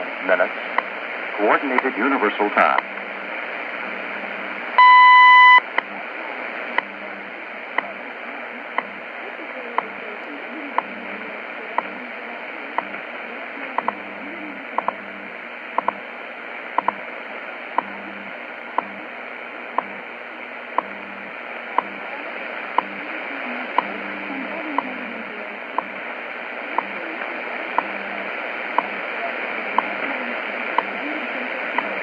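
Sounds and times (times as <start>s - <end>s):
radio static hiss: 0.0s - 32.0s
time signal ticks: 14.8s - 15.0s.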